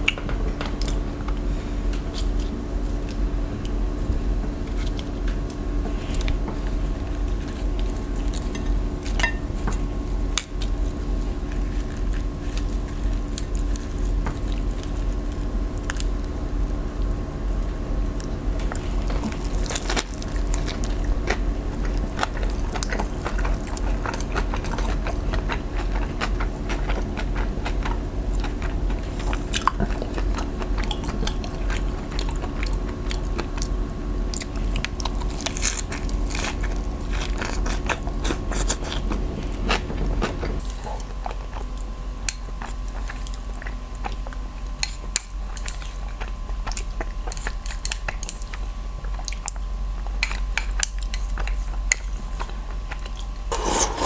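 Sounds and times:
person chewing food: 0:00.0 - 0:54.0
lettuce crunching: 0:02.0 - 0:16.3, 0:17.6 - 0:33.7, 0:34.3 - 0:40.4.

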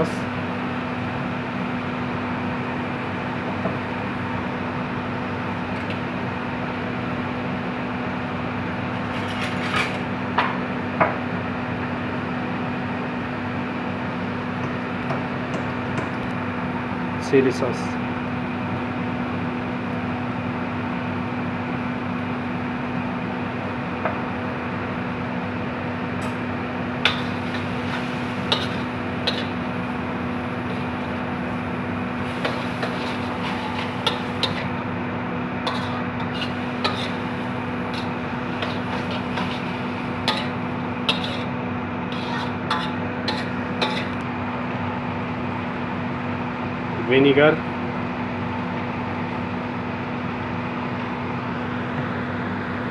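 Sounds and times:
spatula scraping a wok: 0:09.0 - 0:10.0, 0:27.0 - 0:29.7, 0:32.2 - 0:34.8, 0:35.6 - 0:44.2
steady low hum: 0:23.2 - 0:50.3.

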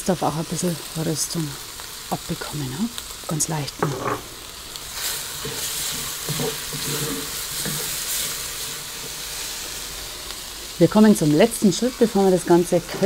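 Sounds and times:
meat sizzling in a pot: 0:00.0 - 0:13.0
stirring in a pot: 0:03.8 - 0:09.5.

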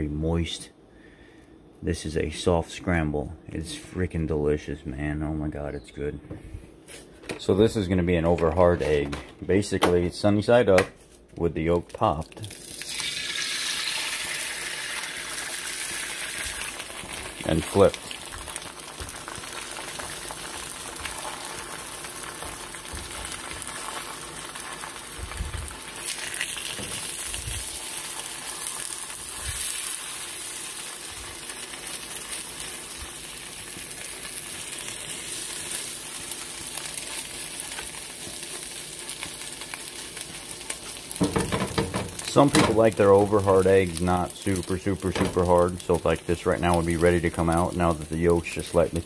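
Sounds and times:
egg sizzling in a pan: 0:12.4 - 0:49.0
spatula bumping in a pan: 0:41.2 - 0:42.2.

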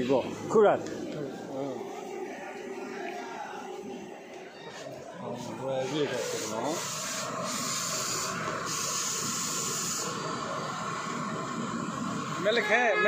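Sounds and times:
steady hiss: 0:05.3 - 0:13.0.

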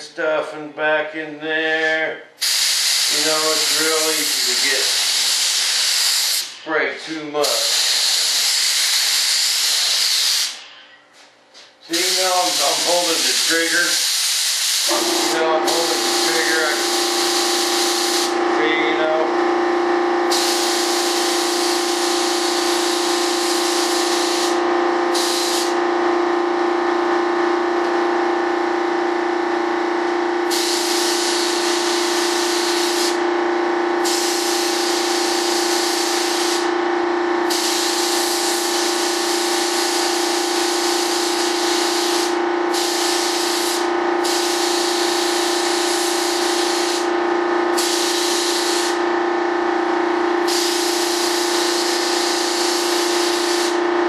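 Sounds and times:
spray gun hissing: 0:02.4 - 0:06.6, 0:07.5 - 0:10.6, 0:11.9 - 0:18.4, 0:20.3 - 0:25.8, 0:30.4 - 0:33.2, 0:34.0 - 0:36.7, 0:37.5 - 0:47.1, 0:47.7 - 0:49.0, 0:50.4 - 0:53.8
steady machine hum: 0:14.8 - 0:54.0.

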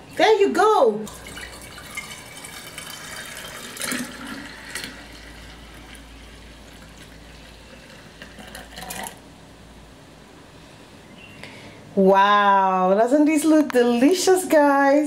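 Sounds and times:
liquid pouring into pitcher: 0:01.0 - 0:09.3.

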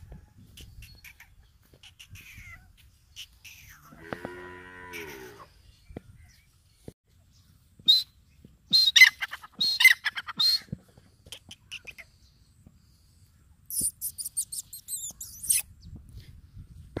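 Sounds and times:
partridge calling: 0:00.5 - 0:03.9, 0:08.7 - 0:12.2, 0:13.7 - 0:15.6.

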